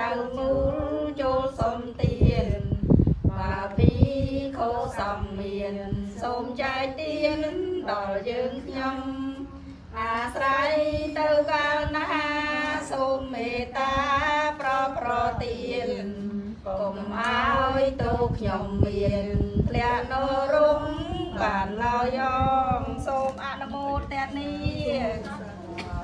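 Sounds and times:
voices chanting in unison: 3.3s - 9.4s, 10.2s - 23.1s.

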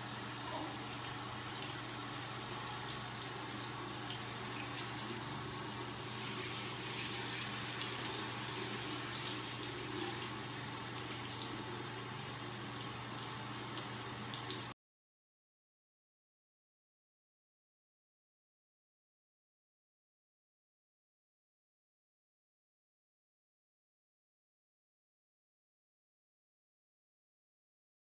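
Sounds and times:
faucet water splashing: 0.4s - 14.7s.

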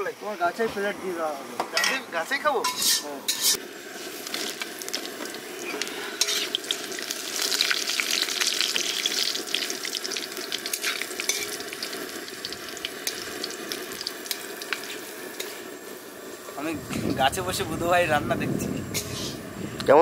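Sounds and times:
metal ladle stirring pan: 2.6s - 3.6s, 4.3s - 7.0s, 10.6s - 11.8s
spices sizzling in hot oil: 2.6s - 16.7s, 18.9s - 19.5s.

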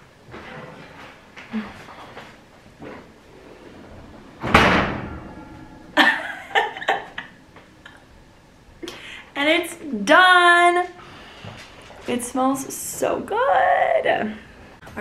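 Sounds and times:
oven door thudding shut: 3.8s - 6.0s
woman laughing: 6.0s - 8.0s.

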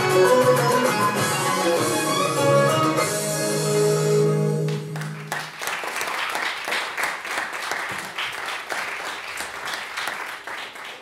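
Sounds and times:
audience applause: 4.7s - 11.0s.

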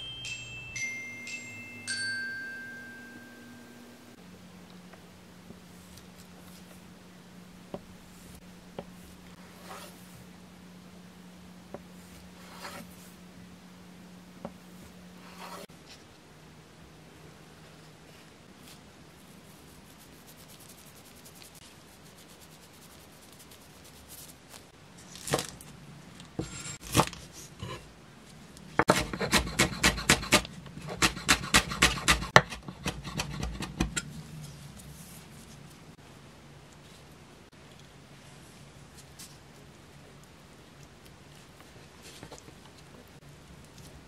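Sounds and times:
knife chopping on cutting board: 28.8s - 33.9s.

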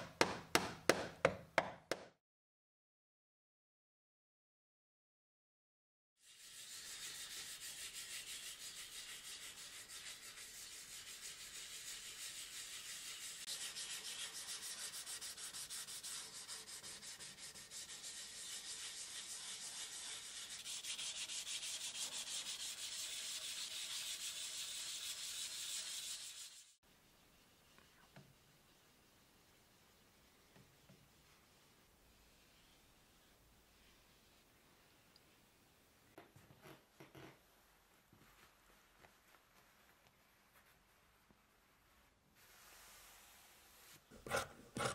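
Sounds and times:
sandpaper scrubbing wood: 6.2s - 26.8s.

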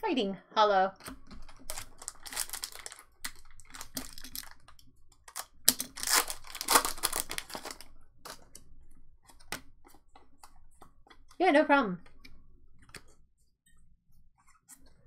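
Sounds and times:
foil pack tearing and crinkling: 1.5s - 4.7s, 5.3s - 8.4s.

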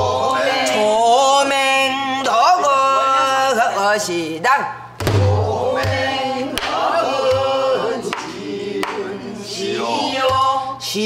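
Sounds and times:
barrel drum strokes: 5.0s - 6.1s.

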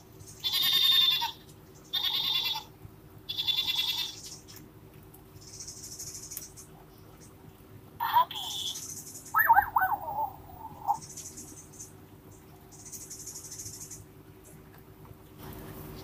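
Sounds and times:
goat bleats from small speaker: 2.0s - 2.7s, 3.3s - 4.1s.

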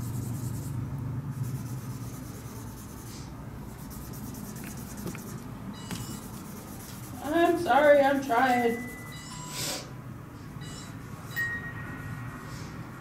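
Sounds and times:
marker pen scratching on paper: 1.4s - 9.0s.

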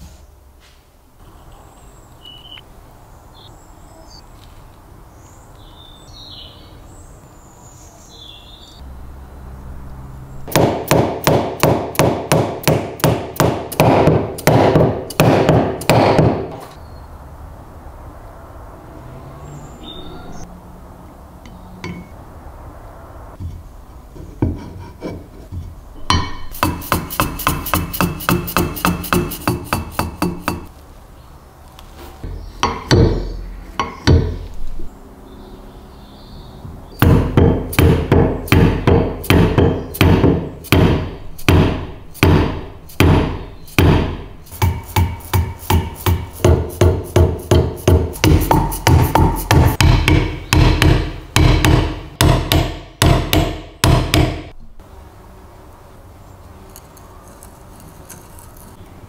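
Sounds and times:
hammer striking steel punch: 10.5s - 16.6s, 26.0s - 30.7s, 32.6s - 34.4s, 37.0s - 54.5s.

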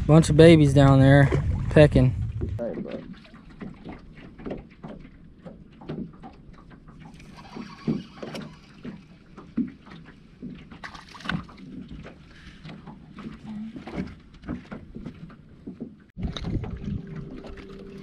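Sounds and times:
waves lapping against boat hull: 0.0s - 18.0s
water rush: 6.9s - 14.1s, 16.2s - 18.0s.

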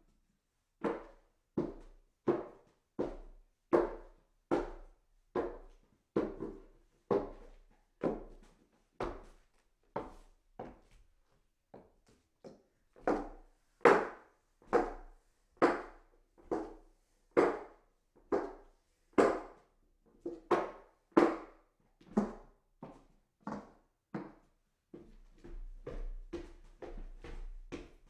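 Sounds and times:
footsteps on hollow wooden stairs: 24.9s - 28.0s.

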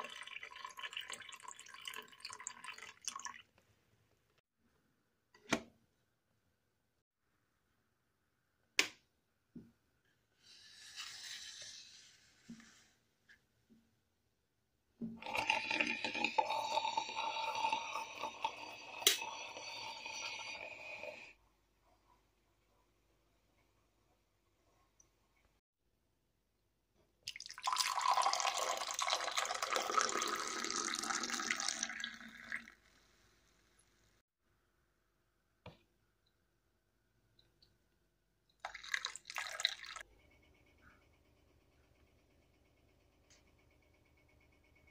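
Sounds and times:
drip coffee maker hissing: 15.2s - 21.4s
liquid splashing into a glass: 38.6s - 40.0s.

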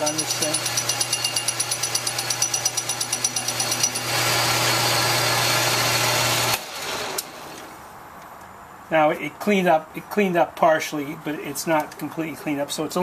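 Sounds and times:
lathe cutting metal: 0.0s - 7.2s
lathe motor hum: 0.2s - 7.2s.

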